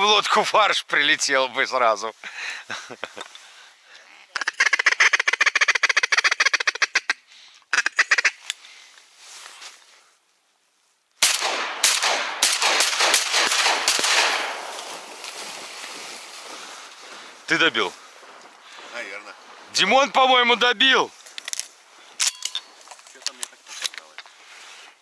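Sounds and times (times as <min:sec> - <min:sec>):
duck quacking: 0:04.3 - 0:08.4
shotgun shots: 0:11.2 - 0:15.1.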